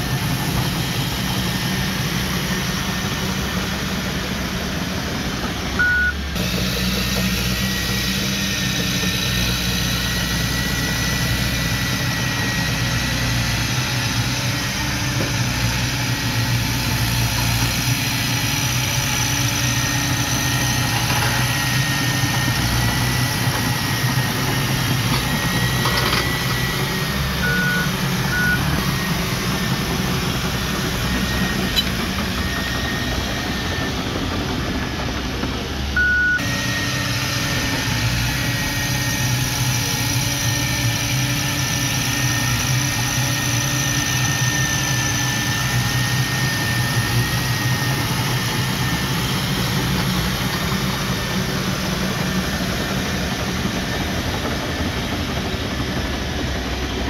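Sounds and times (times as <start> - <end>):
bulldozer engine droning: 0.0 - 57.0
short beeps: 5.8 - 6.2, 27.4 - 28.8, 31.2 - 32.7, 36.0 - 36.5
high whine: 7.2 - 56.9.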